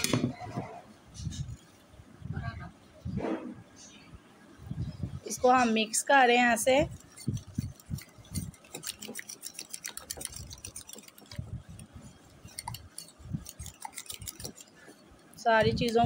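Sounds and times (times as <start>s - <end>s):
utensil clinking against glass bowl: 12.4s - 16.0s.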